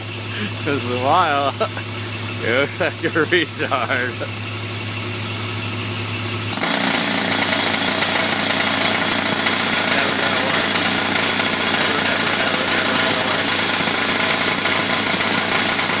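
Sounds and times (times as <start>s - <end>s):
jackhammer hammering on steel: 6.4s - 16.0s.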